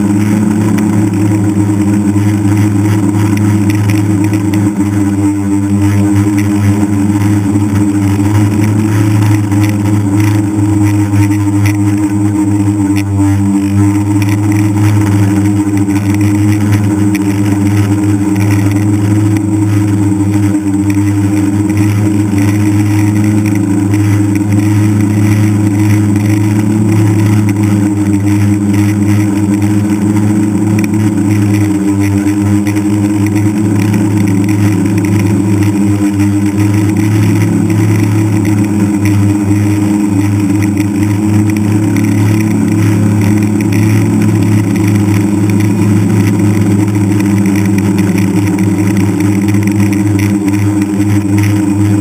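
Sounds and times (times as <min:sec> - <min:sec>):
drone motors and propellers humming: 0:00.0 - 0:52.0.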